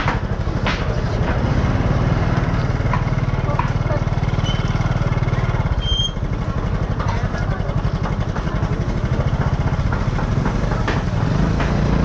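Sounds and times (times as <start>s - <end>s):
small motorbike engine running: 0.3s - 12.0s.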